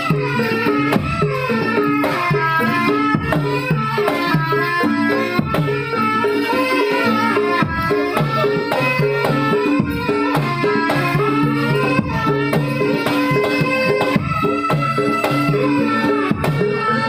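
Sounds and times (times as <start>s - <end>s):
hand drum beats: 0.0s - 17.0s.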